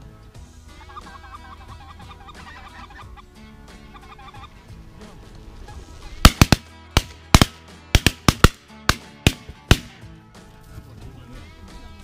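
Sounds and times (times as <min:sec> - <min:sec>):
background music: 0:00.0 - 0:12.0
shotgun shots: 0:06.2 - 0:10.0.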